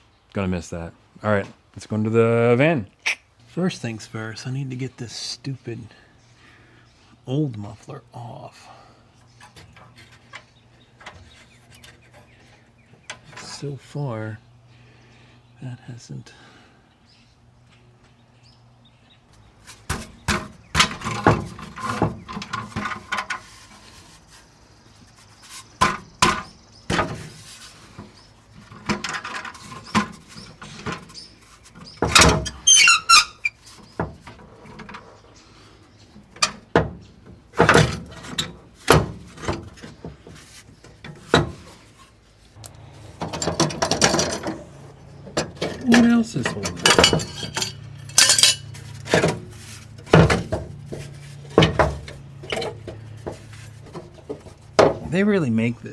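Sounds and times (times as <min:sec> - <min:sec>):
metal knocks and clanks: 0:19.9 - 0:23.5, 0:42.6 - 0:55.2.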